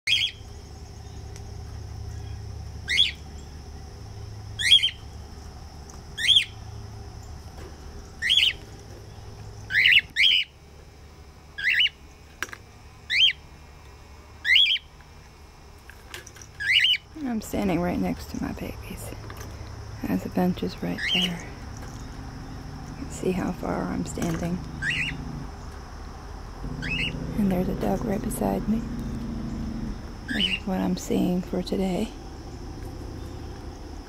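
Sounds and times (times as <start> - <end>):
cockatiels whistle-squawking: 24.8 - 25.2.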